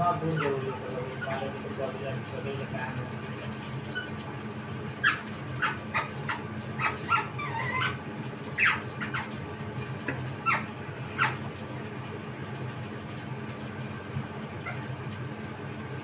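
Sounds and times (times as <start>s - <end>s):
parakeet warbling: 0.0s - 1.6s, 3.8s - 4.2s, 5.0s - 11.5s, 14.6s - 14.9s
parakeet chirping softly: 0.0s - 2.4s, 3.2s - 4.3s, 4.9s - 11.5s, 14.5s - 15.6s.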